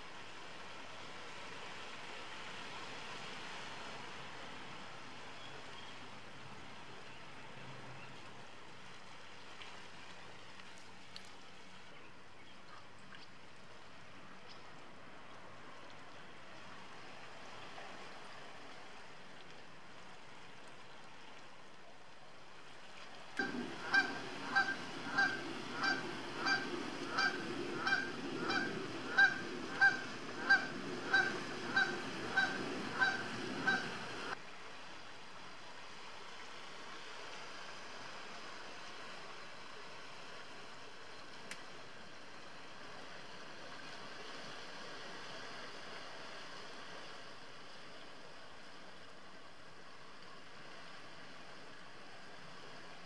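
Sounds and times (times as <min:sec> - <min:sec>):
goose honking: 0:23.4 - 0:34.4.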